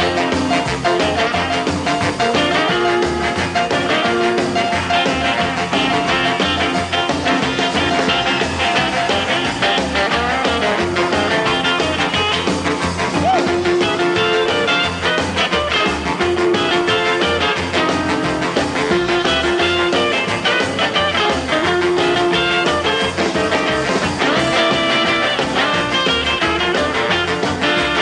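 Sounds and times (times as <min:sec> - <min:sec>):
drums: 0:00.0 - 0:28.0
pulsing bass line: 0:00.0 - 0:28.0
rhythm and blues band playing: 0:00.0 - 0:28.0.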